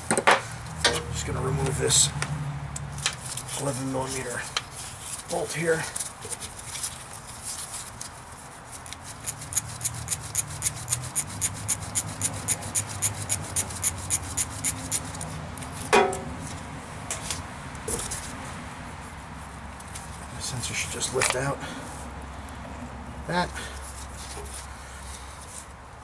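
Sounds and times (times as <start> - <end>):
socket ratchet clicking: 9.2 - 15.2.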